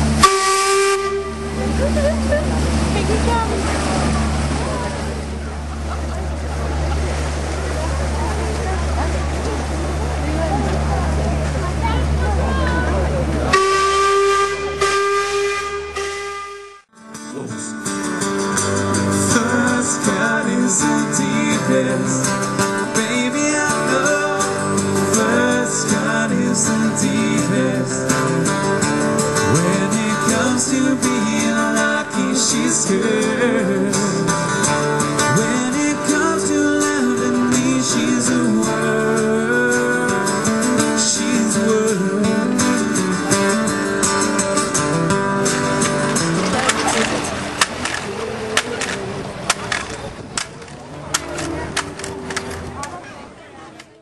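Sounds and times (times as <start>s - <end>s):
steam boat whistle: 0.0s - 2.9s, 13.4s - 16.9s
acoustic guitars strumming: 0.0s - 53.2s
man singing: 17.2s - 18.0s, 18.9s - 43.8s, 48.0s - 49.4s.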